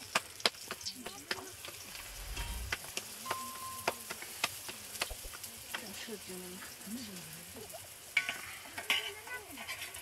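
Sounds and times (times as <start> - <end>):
flatbread sizzling in oil: 0.0 - 10.0
spatula scraping pan: 8.1 - 10.0.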